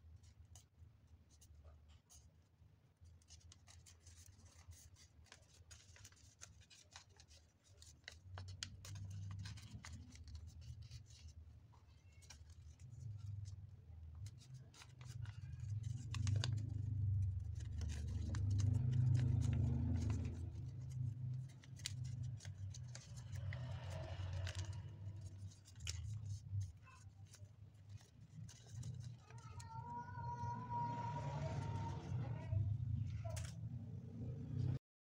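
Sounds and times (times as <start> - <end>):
paper crackling and rustling: 3.1 - 32.6
low rumble: 30.3 - 34.8.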